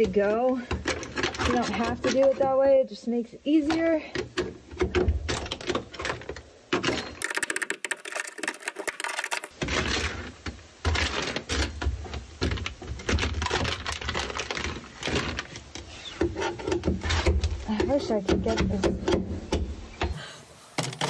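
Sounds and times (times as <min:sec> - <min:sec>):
hand tool scraping steel floor: 0:14.4 - 0:19.1.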